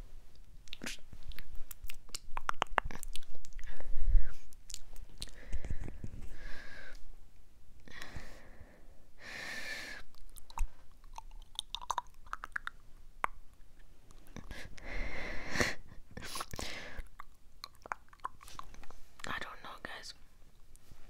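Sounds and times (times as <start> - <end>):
wet mouth clicks and smacks: 0.3 - 3.7, 4.5 - 5.7, 10.1 - 14.6, 16.3 - 19.3.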